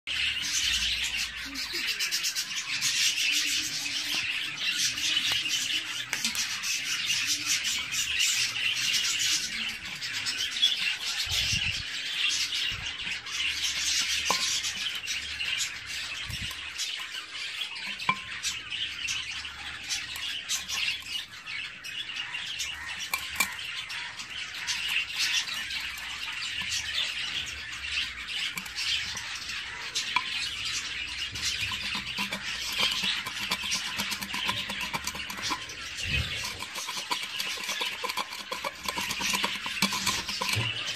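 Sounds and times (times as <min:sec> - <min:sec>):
budgerigars chattering and chirping: 0:00.1 - 0:40.9.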